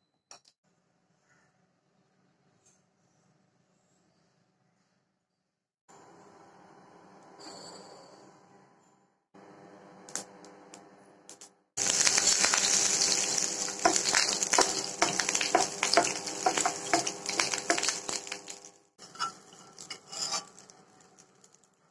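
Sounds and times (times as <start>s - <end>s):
oil sizzling and popping: 11.8s - 21.9s
spatula scraping and tapping pan: 12.0s - 21.3s.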